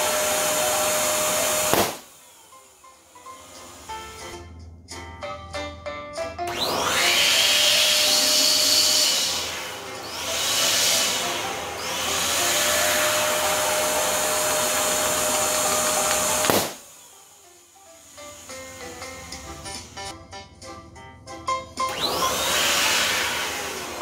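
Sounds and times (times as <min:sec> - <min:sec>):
electric balloon pump running: 0:00.0 - 0:04.4, 0:06.5 - 0:20.1, 0:21.9 - 0:24.0
balloon popping: 0:01.6 - 0:02.1, 0:14.5 - 0:16.9.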